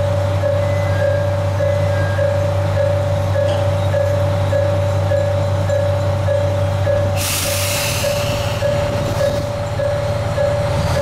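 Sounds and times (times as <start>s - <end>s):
diesel railcar engine idling: 0.0s - 11.0s
compressed air hiss: 7.2s - 8.6s
electronic warning bell: 8.0s - 11.0s.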